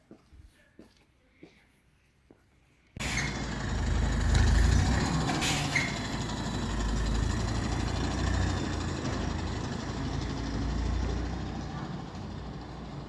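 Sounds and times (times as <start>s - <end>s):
tractor engine running: 3.0s - 13.0s.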